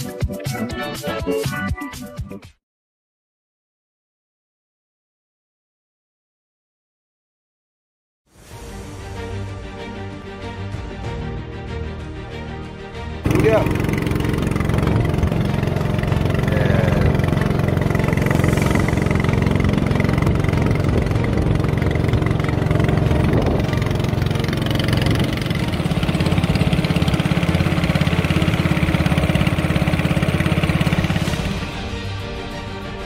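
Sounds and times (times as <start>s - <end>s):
boat engine running: 13.2s - 32.5s
rush of wind and water: 22.8s - 25.7s.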